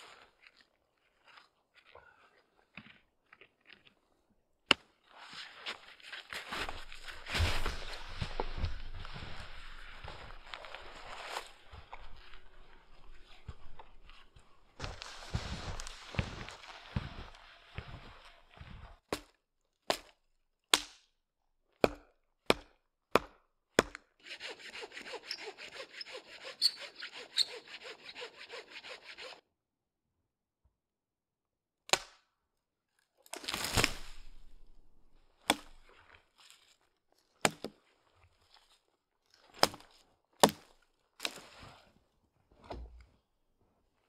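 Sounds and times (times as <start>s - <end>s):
wood crunching: 6.1s - 17.4s, 33.2s - 36.1s
hand saw cutting wood: 23.8s - 29.4s.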